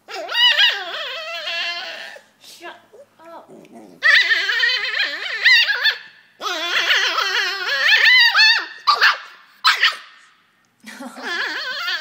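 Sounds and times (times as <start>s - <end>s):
dog barking: 8.9s - 10.1s.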